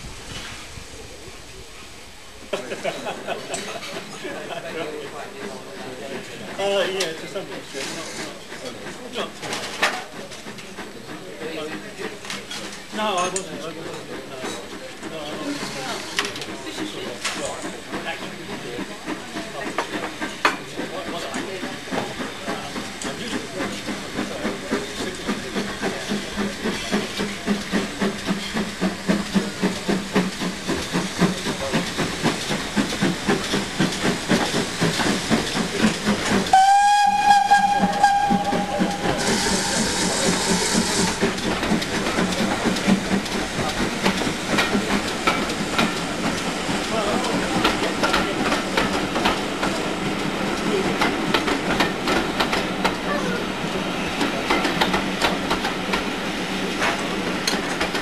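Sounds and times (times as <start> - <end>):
steam hiss: 0.0 - 58.0
steam locomotive chuffing: 0.2 - 58.0
steam whistle: 36.5 - 40.9.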